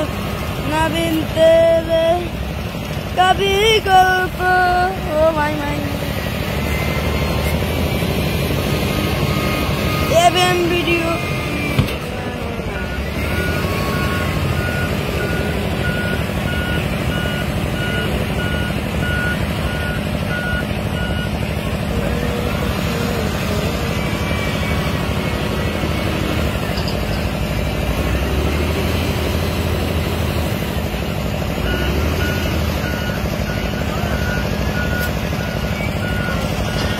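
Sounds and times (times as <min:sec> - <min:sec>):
diesel engine running: 0:00.0 - 0:36.9
reversing alarm beeping: 0:03.4 - 0:36.9.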